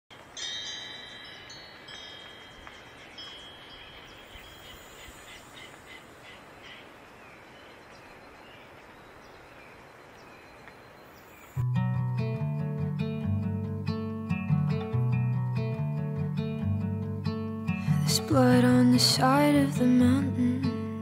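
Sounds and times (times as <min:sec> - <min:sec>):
soft chime-like ringing: 0:00.2 - 0:05.2.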